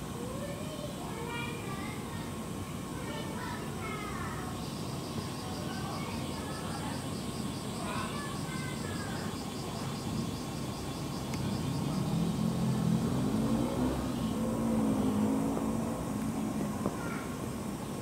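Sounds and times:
vehicle engine passing by: 11.2 - 17.6.

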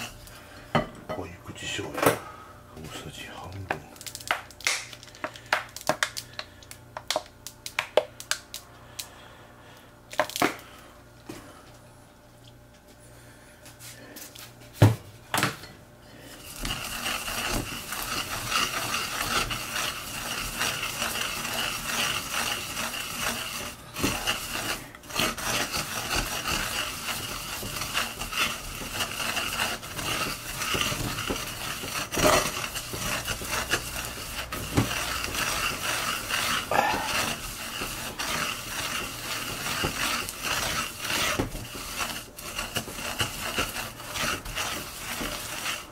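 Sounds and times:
seeds ground in mortar: 16.4 - 45.9.

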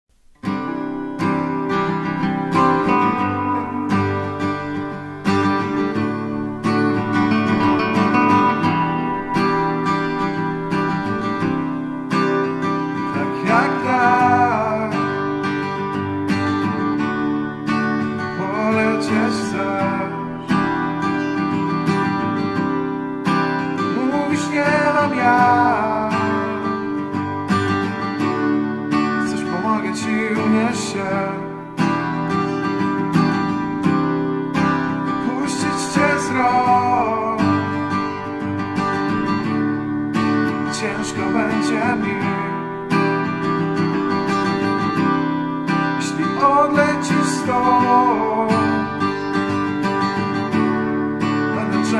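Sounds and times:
acoustic guitar chords: 0.0 - 51.9
wavering sliding melody line: 0.7 - 15.4.

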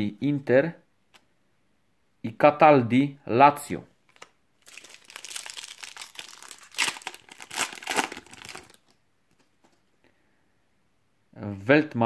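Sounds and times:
foil wrapper crinkling and tearing: 4.6 - 8.9.

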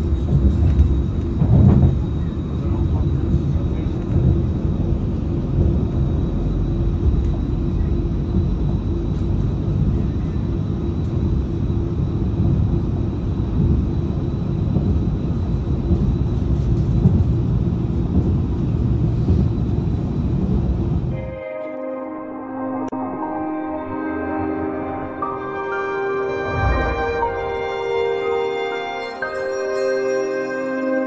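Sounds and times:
train wheels rumbling on track: 0.0 - 21.2.

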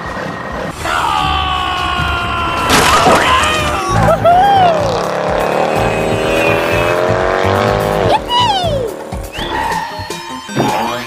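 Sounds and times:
background music: 0.0 - 11.0
cartoon tyre squeal tones: 8.1 - 11.0.

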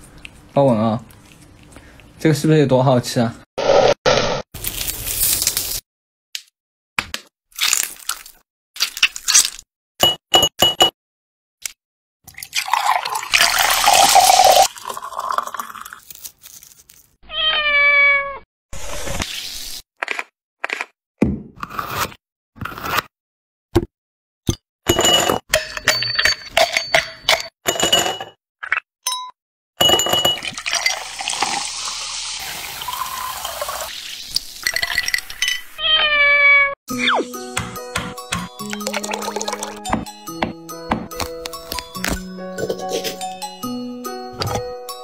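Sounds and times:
soda poured over ice: 12.4 - 16.0, 30.4 - 35.4
cat meowing: 17.2 - 18.4, 35.8 - 36.8.

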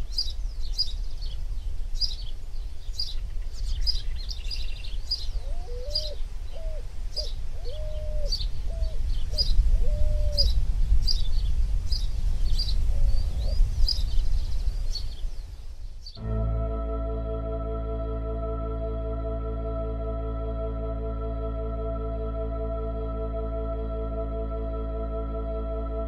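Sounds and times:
low hooting bird call: 5.2 - 10.6
ambient music of sustained tones: 16.2 - 26.0
steady low rumble: 16.2 - 26.0.

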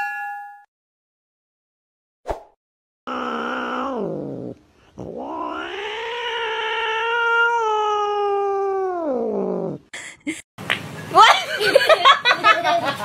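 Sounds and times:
cat yowling: 3.1 - 9.7.

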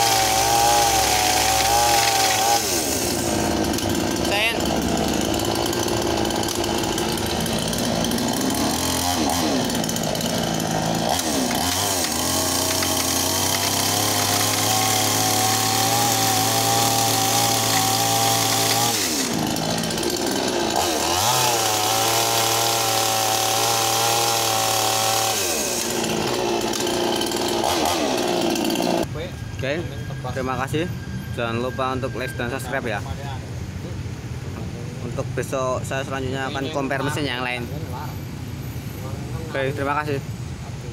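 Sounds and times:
chainsaw cutting wood: 0.0 - 29.1.

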